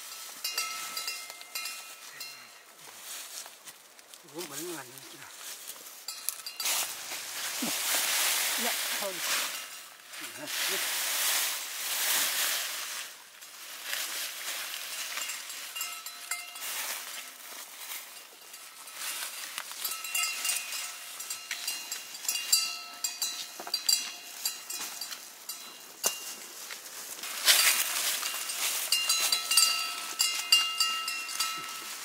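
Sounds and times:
metallic clinks with ringing: 0:00.0 - 0:02.7, 0:06.0 - 0:07.0, 0:15.0 - 0:26.4, 0:27.4 - 0:32.0
rustling and scraping: 0:00.0 - 0:32.0.

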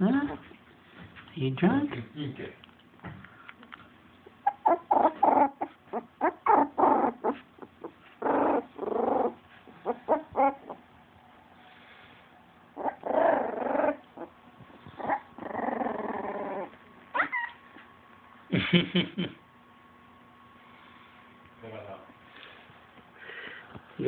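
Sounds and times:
puppy whines: 0:04.2 - 0:10.9, 0:12.8 - 0:17.9
puppies squeaking and whimpering: 0:04.3 - 0:10.9, 0:12.8 - 0:17.8.

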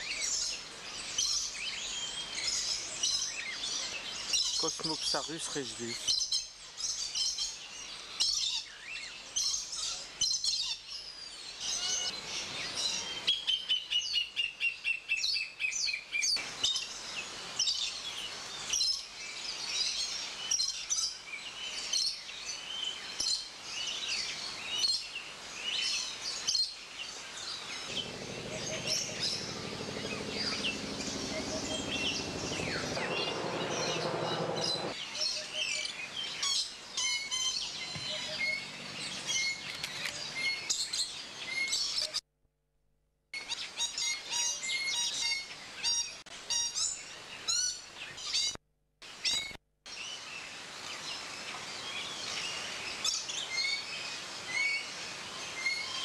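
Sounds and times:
birds chirping and calling: 0:00.0 - 0:11.0, 0:27.6 - 0:42.1
low hum: 0:27.9 - 0:35.0.

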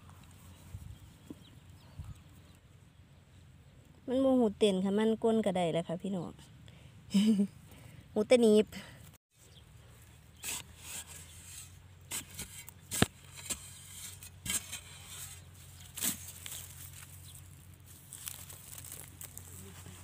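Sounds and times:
metal tool scraping clay soil: 0:10.3 - 0:20.0
crumbling earth: 0:14.4 - 0:20.0.

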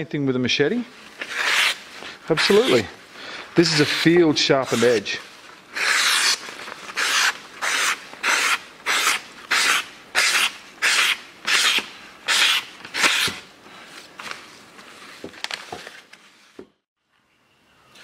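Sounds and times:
machete slicing through paper: 0:01.2 - 0:02.9, 0:05.7 - 0:13.5.

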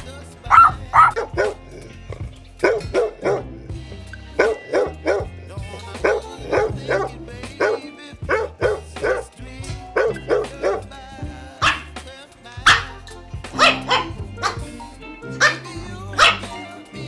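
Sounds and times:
background music: 0:00.0 - 0:17.0
dog barking: 0:00.5 - 0:01.6, 0:02.6 - 0:03.5, 0:04.4 - 0:05.3, 0:06.0 - 0:09.3, 0:10.0 - 0:10.8, 0:11.6 - 0:11.9, 0:12.6 - 0:13.0, 0:13.6 - 0:14.6, 0:15.4 - 0:15.6, 0:16.2 - 0:16.6.

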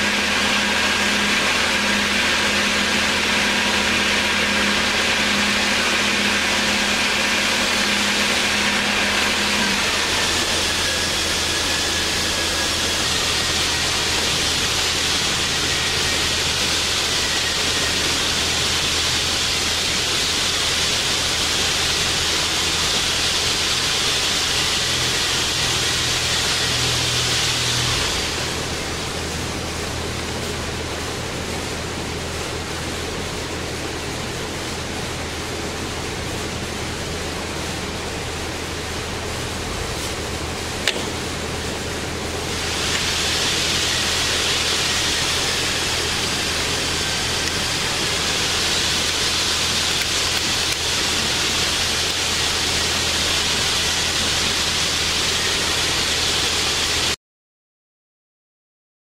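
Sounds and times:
lathe motor humming: 0:00.0 - 0:57.2
broad hiss: 0:42.5 - 0:57.2.

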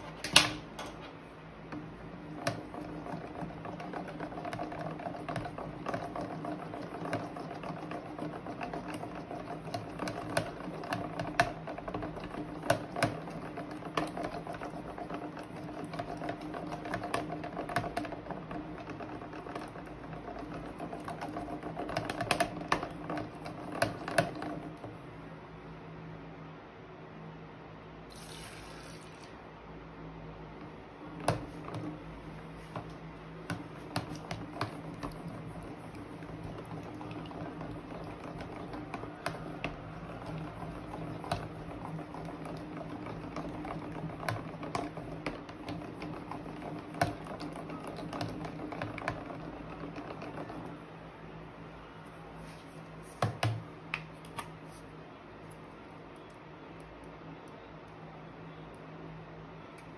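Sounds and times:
spoon stirring wet slime: 0:01.8 - 0:25.0, 0:31.1 - 0:50.8
spoon tapping plastic tub: 0:31.2 - 0:32.0, 0:32.6 - 0:50.7.

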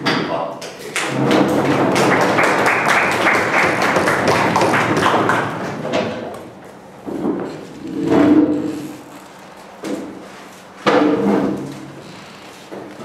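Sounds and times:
audience applauding: 0:00.9 - 0:05.8.

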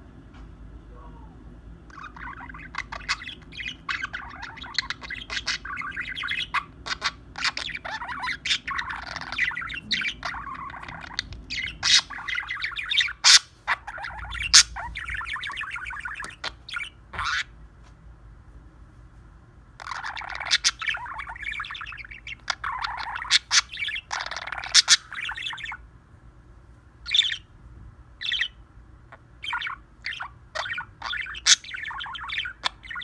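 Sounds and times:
budgerigar squawks: 0:01.9 - 0:17.5, 0:19.8 - 0:25.8, 0:29.4 - 0:33.0
budgerigar warbling: 0:01.9 - 0:17.5, 0:19.8 - 0:25.8, 0:27.1 - 0:27.5, 0:28.2 - 0:33.0.

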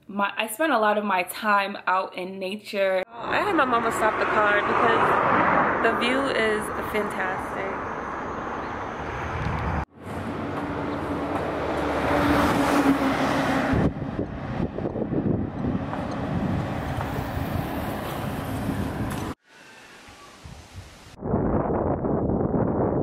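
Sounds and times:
road traffic: 0:03.1 - 0:20.9
vehicle engine: 0:03.2 - 0:19.4
wind on microphone: 0:08.7 - 0:09.9, 0:13.5 - 0:19.4, 0:20.2 - 0:23.0.

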